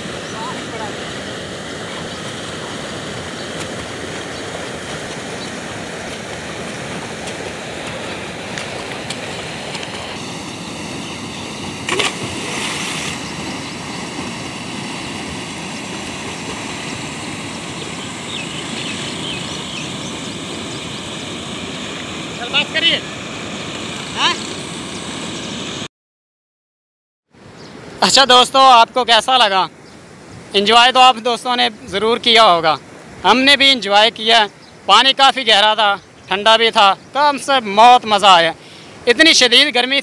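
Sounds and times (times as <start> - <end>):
loud splash: 0.0 - 19.1
water rushing: 0.0 - 25.9.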